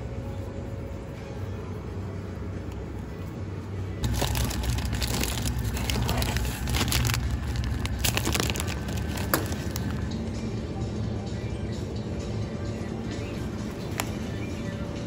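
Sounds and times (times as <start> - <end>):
steady low hum: 0.0 - 15.0
plastic bag crinkling: 4.0 - 10.1.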